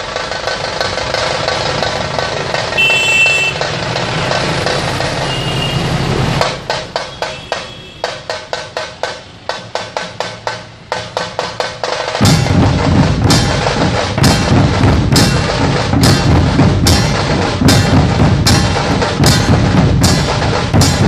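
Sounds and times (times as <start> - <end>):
dhol drums playing: 0.0 - 21.0.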